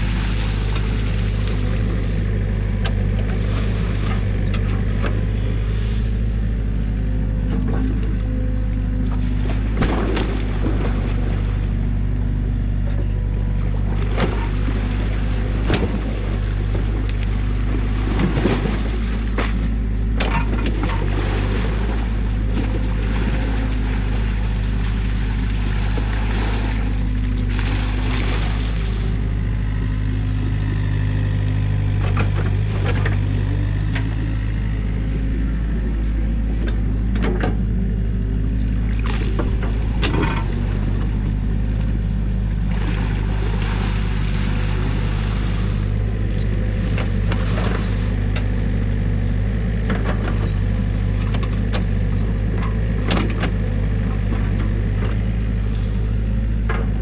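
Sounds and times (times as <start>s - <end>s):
bucket splashing in mud and water: 0.0s - 1.9s, 9.2s - 11.7s, 13.9s - 29.2s, 42.6s - 46.0s
diesel engine running: 0.0s - 57.0s.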